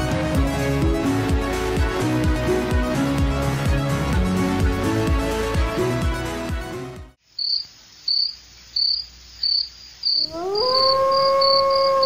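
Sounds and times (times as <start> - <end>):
music: 0.0 - 7.2
crickets chirping: 7.2 - 12.0.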